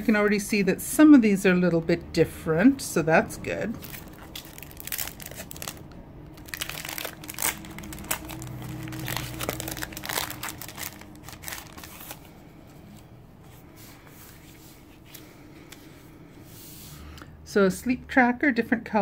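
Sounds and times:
plastic sleeve and paper crinkling: 3.7 - 13.0.

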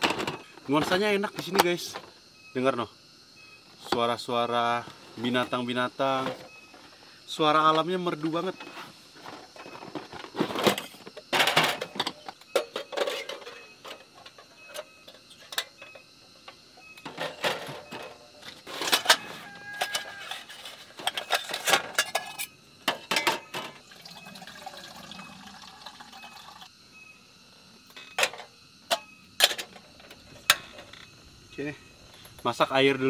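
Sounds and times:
metal cookware clinking: 21.0 - 23.8
water pouring: 23.8 - 26.7.

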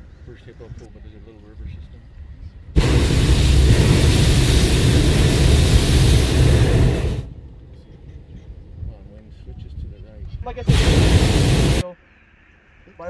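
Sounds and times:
propane burner blast: 2.8 - 7.6, 10.6 - 11.8.

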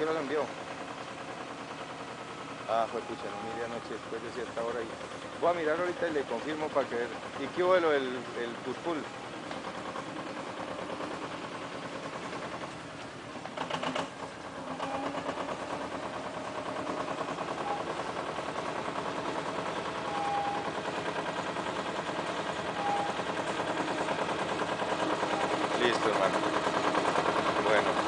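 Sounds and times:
dumper engine chugging: 0.0 - 28.0.

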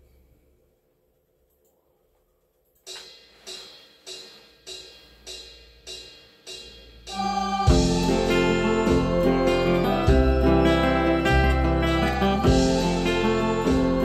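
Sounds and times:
acoustic guitar notes: 7.6 - 14.0.

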